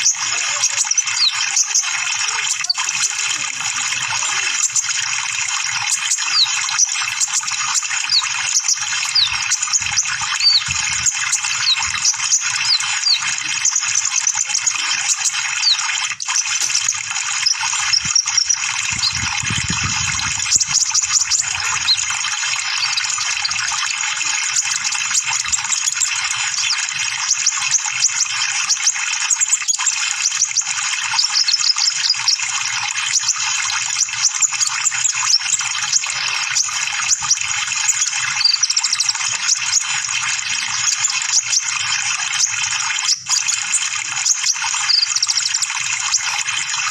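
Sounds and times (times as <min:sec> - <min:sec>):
bird chirps and trills: 0:00.0 - 0:46.9.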